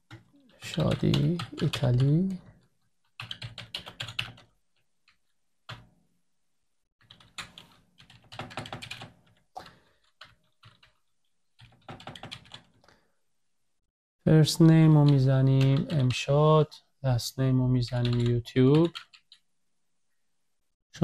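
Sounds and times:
typing on a computer keyboard: 0:00.0 - 0:05.9, 0:07.0 - 0:12.8, 0:18.0 - 0:19.4.

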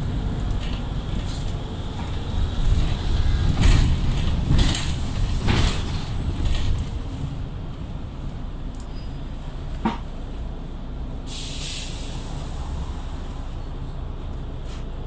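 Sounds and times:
bus body rattling: 0:00.0 - 0:11.4
bus rumbling on road: 0:00.0 - 0:15.0.

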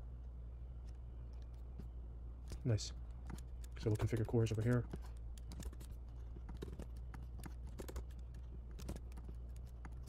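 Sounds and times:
low steady hum: 0:00.0 - 0:10.0
keyboard keys clicking: 0:03.2 - 0:10.0.

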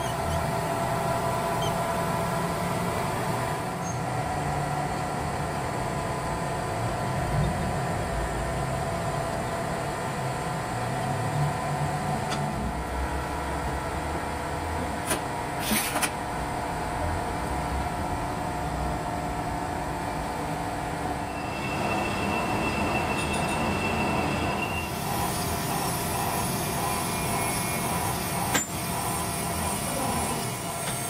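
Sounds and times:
industrial machinery running: 0:00.0 - 0:31.0
thin high whine: 0:21.1 - 0:28.7.

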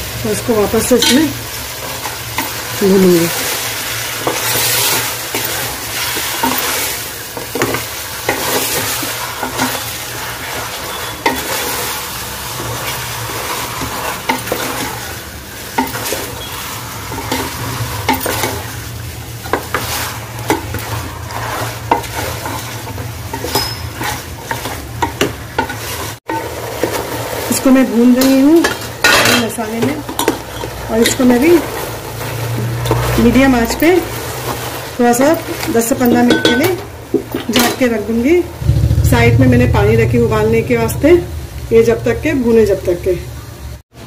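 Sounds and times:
meat sizzling in hot oil: 0:00.0 - 0:40.0
wooden spatula scraping a pot: 0:04.2 - 0:15.1, 0:19.5 - 0:27.5.

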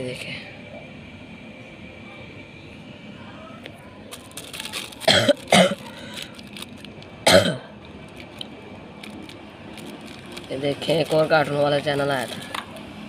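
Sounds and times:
man coughing: 0:05.1 - 0:06.0, 0:07.2 - 0:07.7.

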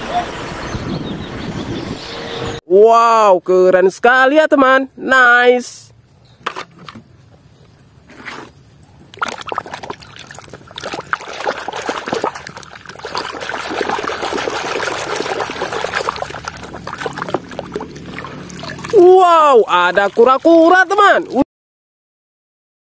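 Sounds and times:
water sloshing and splashing in tub: 0:09.0 - 0:21.4.

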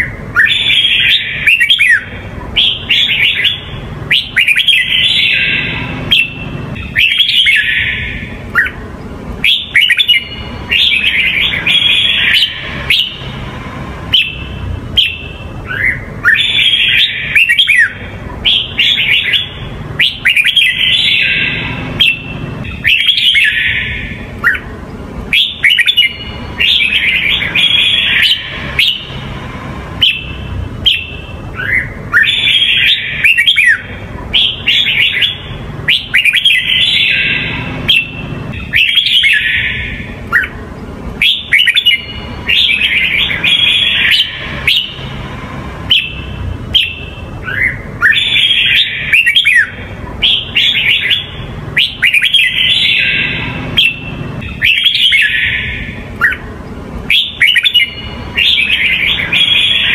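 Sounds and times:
bird singing whistled notes: 0:00.0 - 0:08.8, 0:09.4 - 0:24.7, 0:25.3 - 0:40.6, 0:41.2 - 0:56.5, 0:57.1 - 0:59.9
steady low hum: 0:00.0 - 0:59.9.

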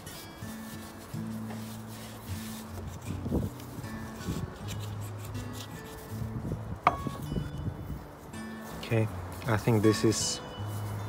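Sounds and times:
cloth rag rubbing on wood: 0:00.0 - 0:06.4
soft background music: 0:00.0 - 0:11.0.

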